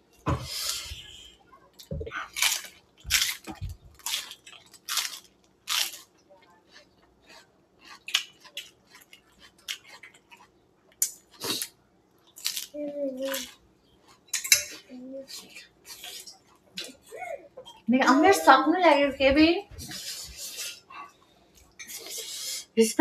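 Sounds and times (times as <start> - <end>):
lettuce being crunched: 2.3 - 6.2, 12.3 - 13.5.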